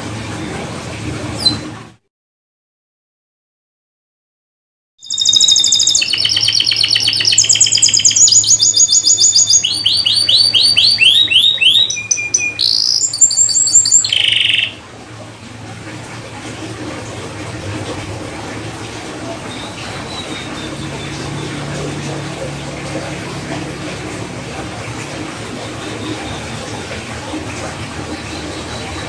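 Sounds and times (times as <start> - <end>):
canary singing trills: 5.0 - 14.8, 19.4 - 29.0.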